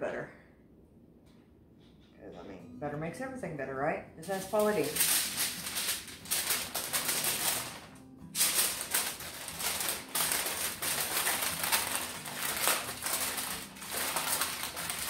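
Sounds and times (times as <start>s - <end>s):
aluminium foil crinkling: 4.2s - 15.0s.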